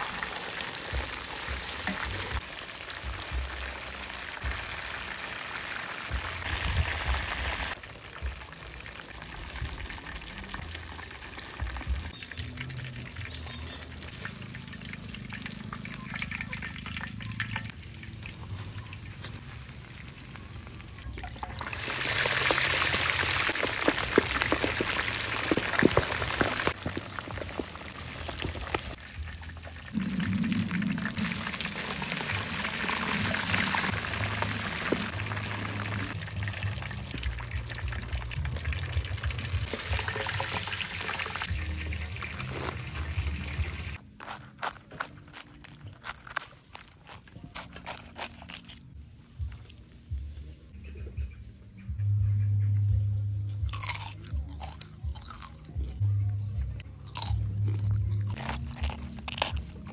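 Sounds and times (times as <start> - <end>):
deep-frying in hot oil: 0.0 - 44.5
background music: 0.0 - 59.9.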